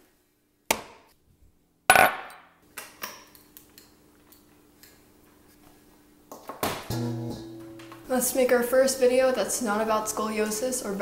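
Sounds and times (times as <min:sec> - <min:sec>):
metal bowl clattering: 0:06.9 - 0:08.1.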